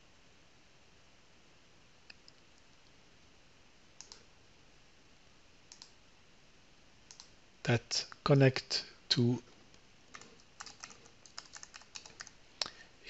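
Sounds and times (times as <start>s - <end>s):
computer mouse clicks: 4.0s - 4.3s, 5.7s - 6.0s, 7.1s - 7.3s, 10.1s - 12.8s.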